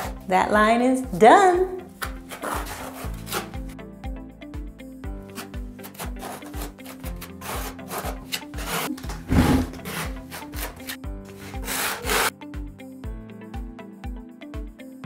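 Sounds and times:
trowel scraping mortar: 0.0s - 0.2s, 2.0s - 3.8s, 5.3s - 12.3s
background music with steady beat: 0.0s - 15.0s.

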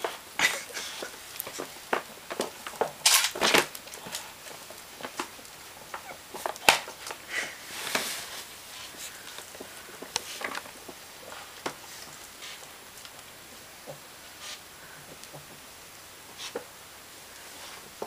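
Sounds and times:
plastic bag crinkling: 0.8s - 13.6s.

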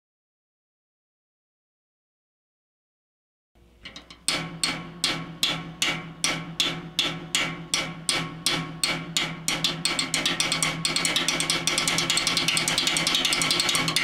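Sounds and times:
wood block taps: 3.9s - 14.0s.

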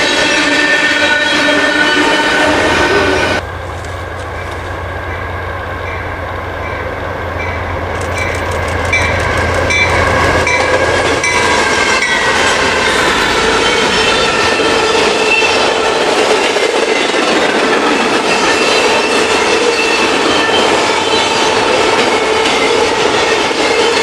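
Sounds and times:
diesel locomotive engine hum: 0.0s - 24.0s
train wheels clicking over rail joints: 6.6s - 24.0s.

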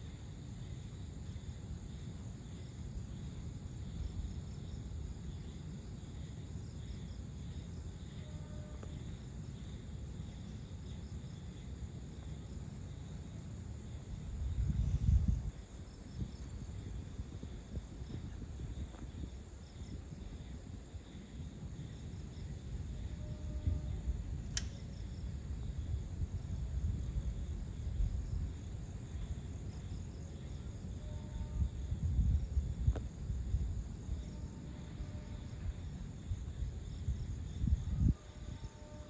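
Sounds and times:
crickets and insects trilling: 0.0s - 39.0s
sharp clicks: 24.5s - 24.8s.

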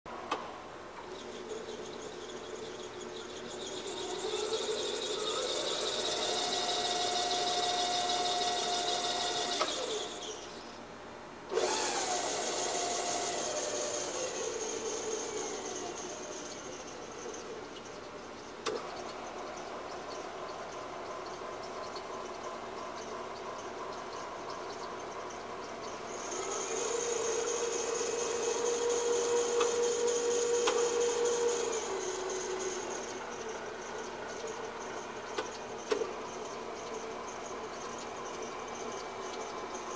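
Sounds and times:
electric motor whining: 3.4s - 10.7s, 11.5s - 17.5s, 25.8s - 39.9s.

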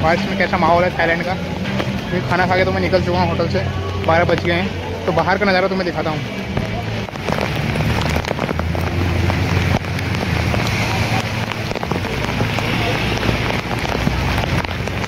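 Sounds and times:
heavy rain hissing: 0.0s - 15.0s
raindrops hitting close by: 0.0s - 15.0s.

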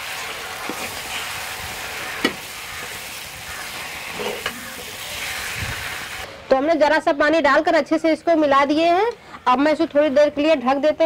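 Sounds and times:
food sizzling in a pan: 0.0s - 6.3s.

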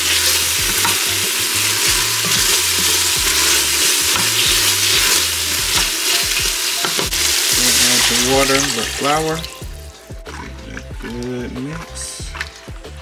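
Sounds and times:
onions sizzling in hot oil: 0.0s - 10.0s
spatula scraping pot bottom: 0.1s - 5.9s.

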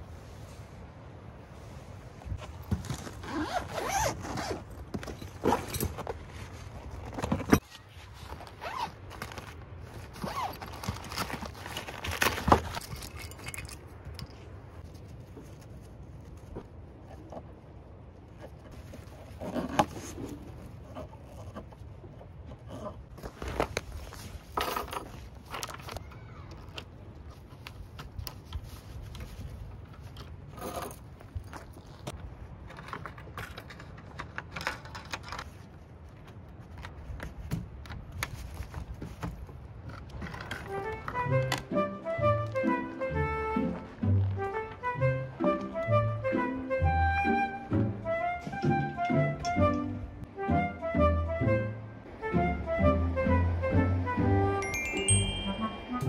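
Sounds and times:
metal pegs clinking on wood: 12.7s - 14.4s.

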